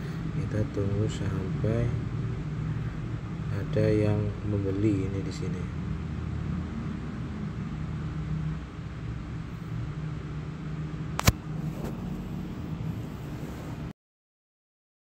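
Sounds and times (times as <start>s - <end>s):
low background hum and rumble: 0.0s - 13.9s
sharp click: 11.2s - 11.4s.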